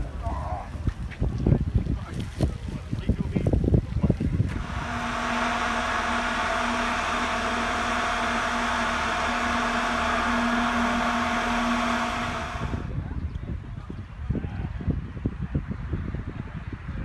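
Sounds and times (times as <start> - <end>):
blower whirring: 4.2 - 13.1.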